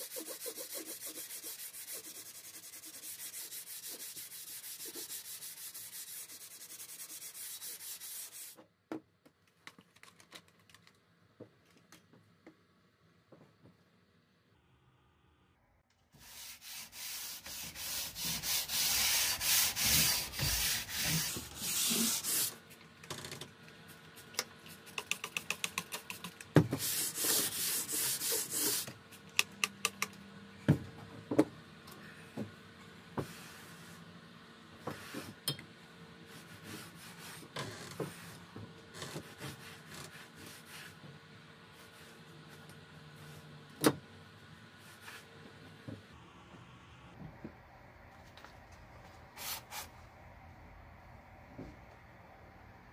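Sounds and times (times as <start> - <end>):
sanding block scrubbing metal: 0.0 - 8.5, 16.2 - 22.5, 26.8 - 28.8.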